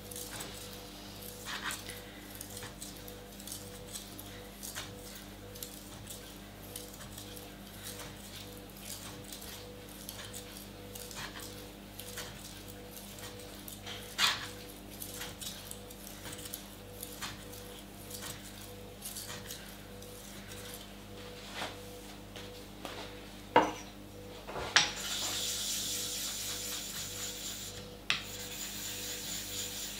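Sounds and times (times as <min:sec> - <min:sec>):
knife scraping on whetstone: 0:24.8 - 0:29.9.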